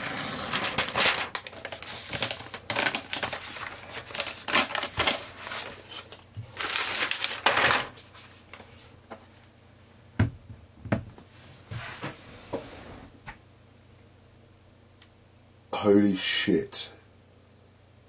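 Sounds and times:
packaging rustling and crinkling: 0.0 - 8.9.

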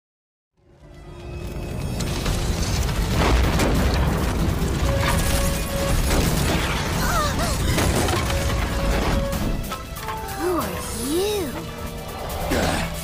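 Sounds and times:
dramatic music score: 0.6 - 13.0
flames burning with deep rumble: 1.0 - 10.0.

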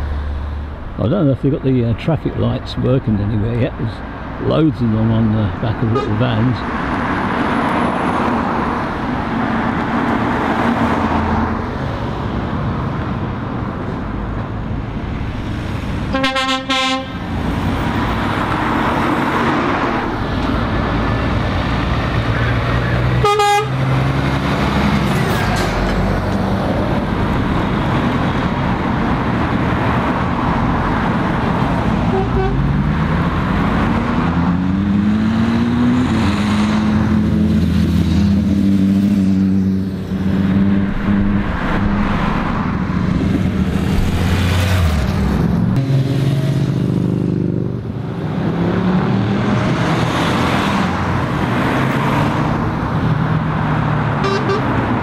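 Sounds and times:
vehicles passing: 0.0 - 55.0
car horn toots: 5.9 - 6.4, 16.1 - 17.2, 23.2 - 23.8, 32.1 - 32.6, 54.2 - 54.8
engine revving: 16.8 - 55.0.

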